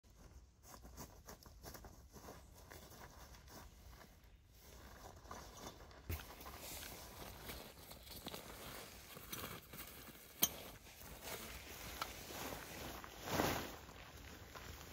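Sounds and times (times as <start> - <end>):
tarp bags rustling and clicking: 4.7 - 14.9.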